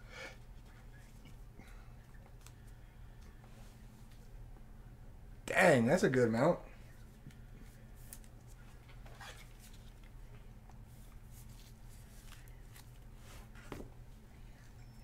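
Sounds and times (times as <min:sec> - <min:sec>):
low steady hum: 0:00.0 - 0:15.0
soft clicks and rustles of handling: 0:02.0 - 0:04.3, 0:06.9 - 0:13.9.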